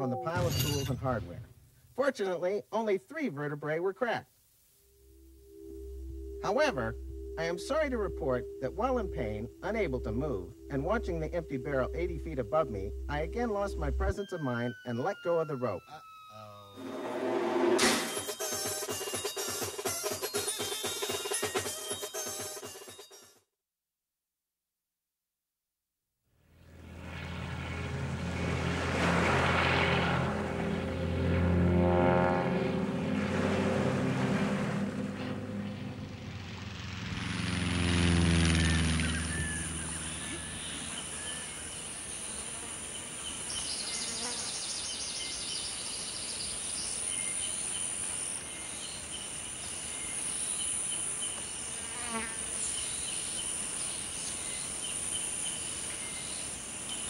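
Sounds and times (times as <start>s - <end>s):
propeller plane flying past: 5.0s - 14.1s, 16.7s - 18.2s, 26.5s - 45.6s.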